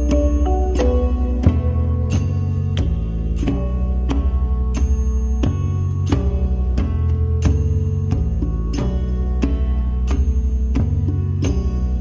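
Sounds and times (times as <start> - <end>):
struck pitched notes: 0.0 - 6.1
steady low bass: 0.0 - 12.0.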